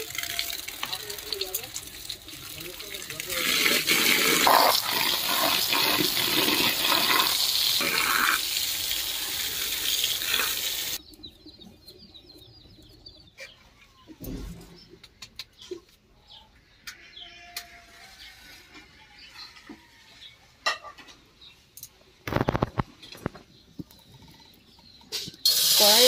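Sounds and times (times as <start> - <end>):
tap water pouring into colander: 0.0 - 11.0
birds chirping: 4.0 - 26.0.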